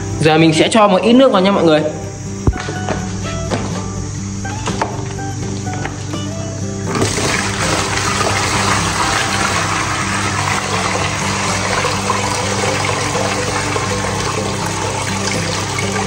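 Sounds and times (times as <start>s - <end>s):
water pouring into plastic tub: 6.9s - 16.0s.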